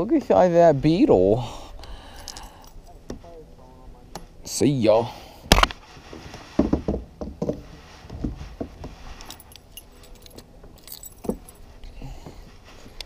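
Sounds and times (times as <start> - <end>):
fishing gear clicking and knocking: 6.6 - 11.5.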